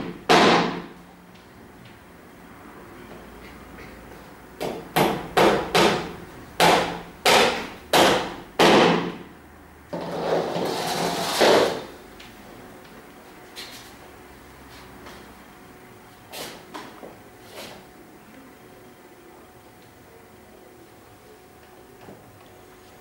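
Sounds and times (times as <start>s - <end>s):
hammer strikes: 0.0s - 1.0s, 4.6s - 9.3s
rough noise: 9.9s - 11.9s.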